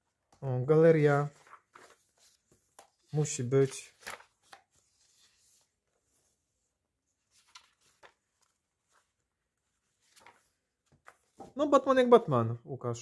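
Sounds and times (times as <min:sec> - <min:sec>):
pages being turned: 0:01.2 - 0:11.6.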